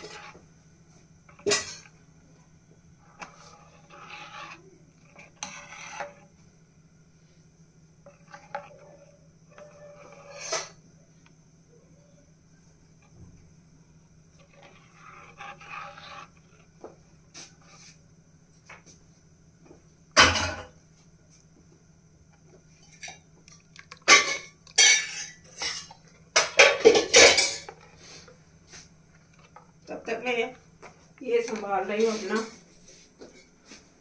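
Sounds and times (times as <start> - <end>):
ladle clanking and scraping in pan: 1.3 - 1.9, 9.6 - 10.8, 23.9 - 27.9.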